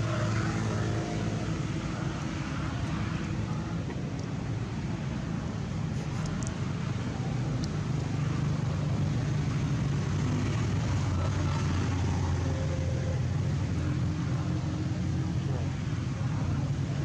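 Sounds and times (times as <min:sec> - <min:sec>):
low engine hum: 0:00.0 - 0:17.0.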